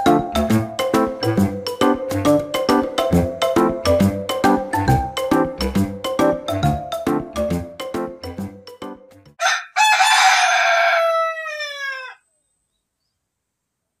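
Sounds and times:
music with a beat: 0.0s - 9.2s
rooster crowing: 9.4s - 12.3s.

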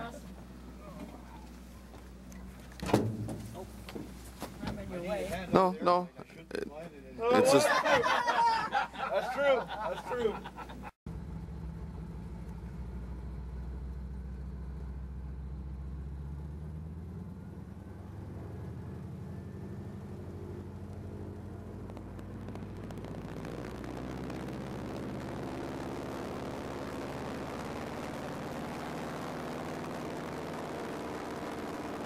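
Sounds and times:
propeller engine droning: 16.8s - 32.0s.

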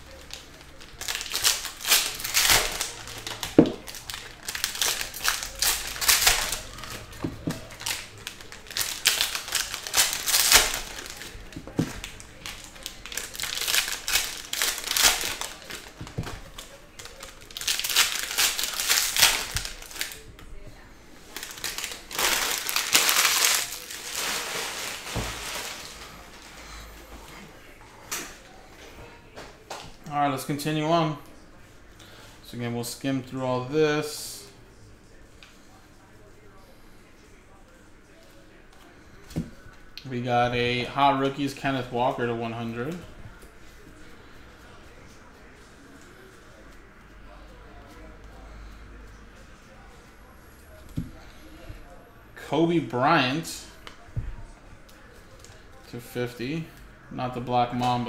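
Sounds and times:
foil wrappers crinkling and tearing: 0.0s - 26.8s.

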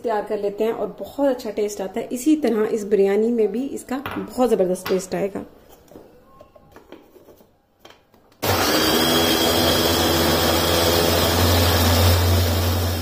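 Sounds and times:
electric chopper motor humming: 8.4s - 13.0s.

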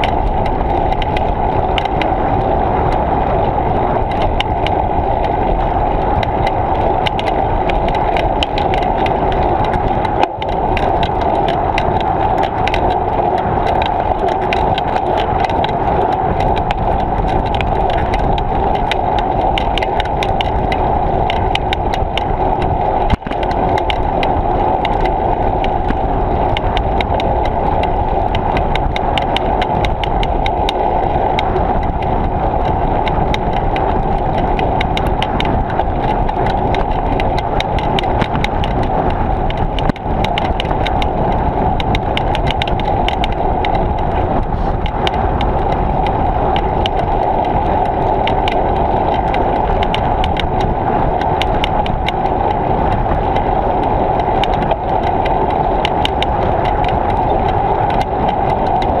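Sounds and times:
wind and tyre noise: 0.0s - 59.0s
fine rattling clicks: 2.9s - 59.0s.

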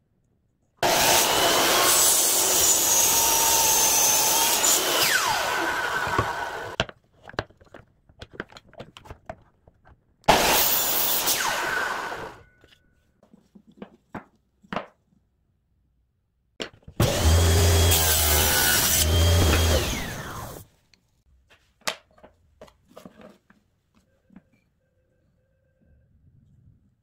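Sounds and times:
table saw ripping plywood: 0.8s - 6.8s, 17.0s - 20.6s.

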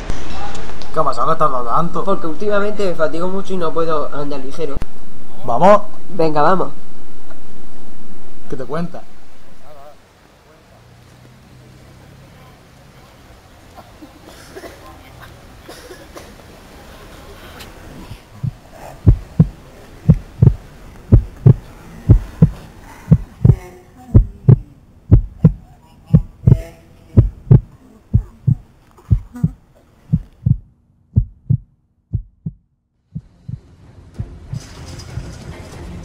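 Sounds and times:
faint street noise: 0.0s - 36.0s
heartbeat double thump: 18.3s - 23.6s, 24.2s - 26.6s, 27.2s - 32.6s, 33.2s - 34.6s.

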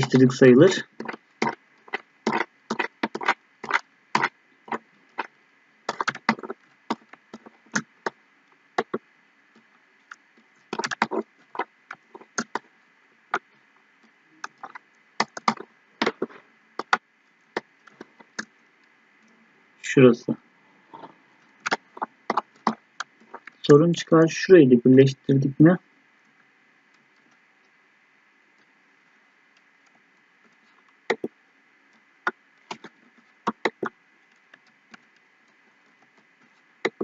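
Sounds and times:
faint background hiss: 0.0s - 37.0s
mouse buttons clicking: 31.1s - 31.3s.

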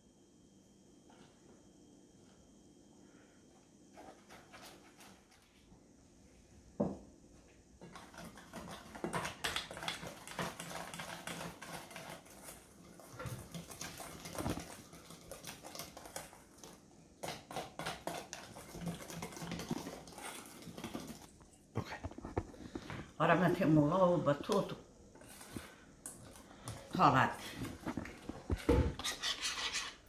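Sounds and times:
wire whisk scraping metal bowl: 29.0s - 30.0s.

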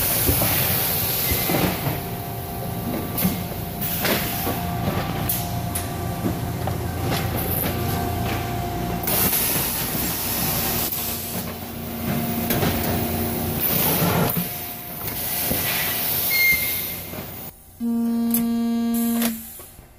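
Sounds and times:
buzzing hum: 17.5s - 19.7s
machinery whirring: 17.8s - 19.8s.

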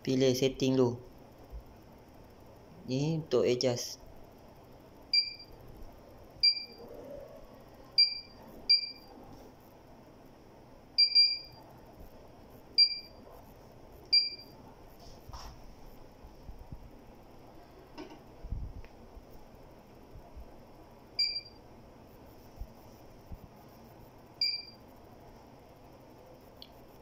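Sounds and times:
short electronic keypad beeps: 5.2s - 5.5s, 6.4s - 6.8s, 8.0s - 9.1s, 11.0s - 11.6s, 12.8s - 13.1s, 14.1s - 14.5s, 21.2s - 21.6s, 24.4s - 24.8s.

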